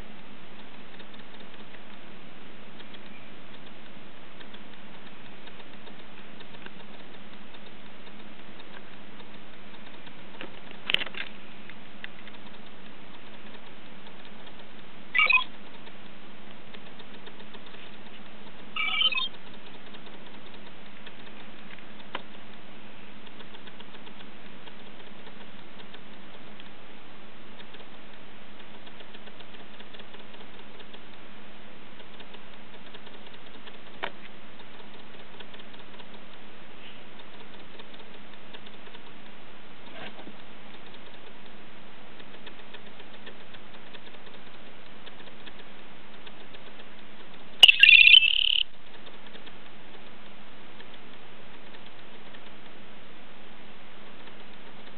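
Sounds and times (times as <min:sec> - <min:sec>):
electronic beep from phone: 0:15.2 - 0:15.5, 0:18.8 - 0:19.3, 0:47.6 - 0:48.6.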